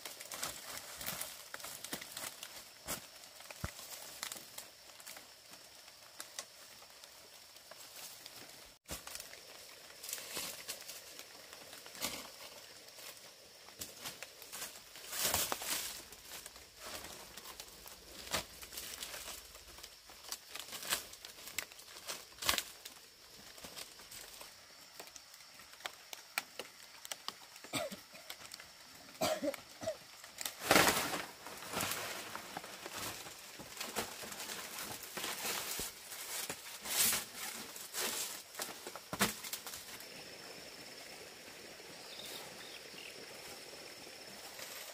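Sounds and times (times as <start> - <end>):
dry palm leaves rustling: 0.0 - 27.5, 28.3 - 40.2, 42.0 - 44.9.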